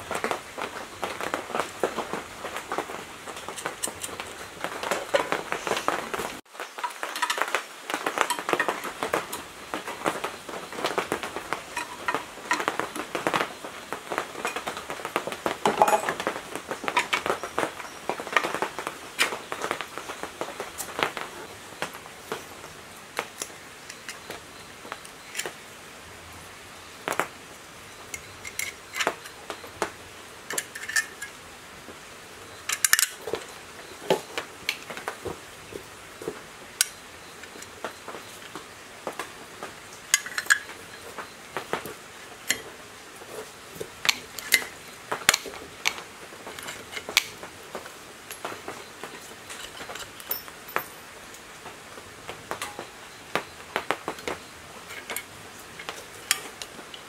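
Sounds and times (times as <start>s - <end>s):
metal parts and tools clicking: 11.7s - 13.1s, 28.1s - 29.4s, 30.5s - 31.3s, 32.7s - 33.2s, 40.1s - 41.0s, 49.5s - 51.1s.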